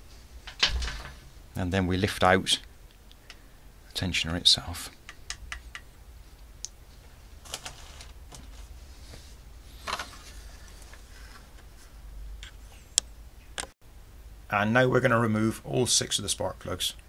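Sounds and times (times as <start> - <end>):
low steady hum: 0.0 - 17.0
parts scraping rustles: 7.0 - 12.9.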